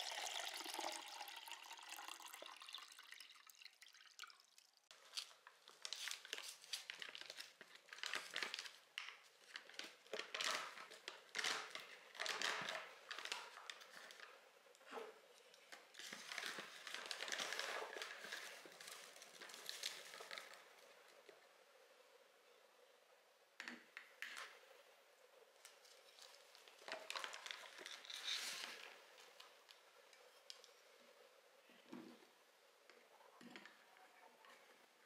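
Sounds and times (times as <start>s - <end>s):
packaging crinkling: 5.0s - 14.4s, 15.7s - 20.7s, 26.1s - 29.5s.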